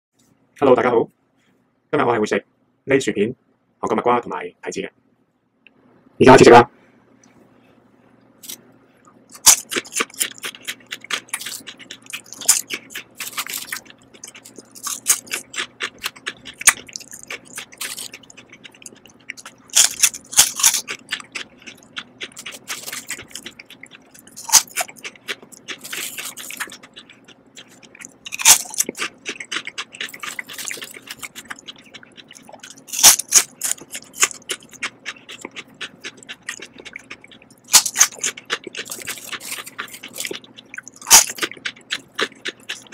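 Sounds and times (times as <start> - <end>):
chips crunching in mouth: 9.3 - 42.9
chips rustling: 19.7 - 21.0.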